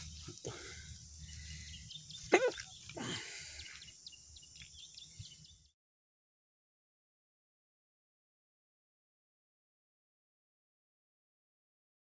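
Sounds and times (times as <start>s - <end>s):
high bird chirps: 1.1s - 5.7s.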